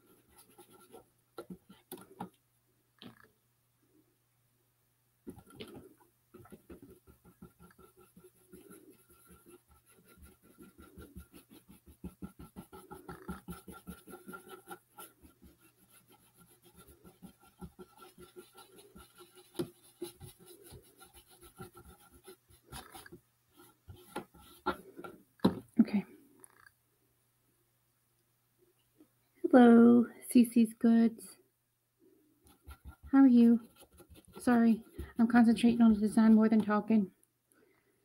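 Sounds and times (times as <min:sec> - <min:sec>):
paintbrush scrubbing on cardboard: 0:00.0 - 0:02.3, 0:05.3 - 0:25.1, 0:32.4 - 0:36.9.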